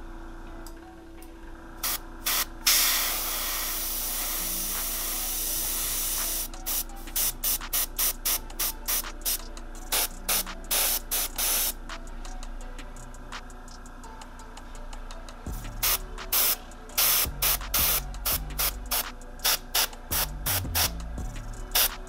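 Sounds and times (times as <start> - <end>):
airbrush spraying: 1.8 - 11.8, 15.8 - 21.0, 21.7 - 22.0.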